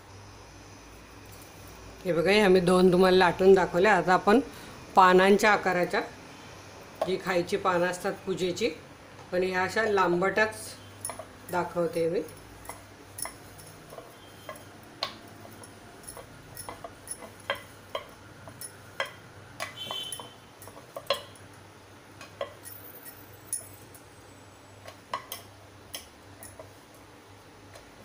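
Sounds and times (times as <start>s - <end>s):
rolling pin clinking on metal board: 12.6s - 21.4s.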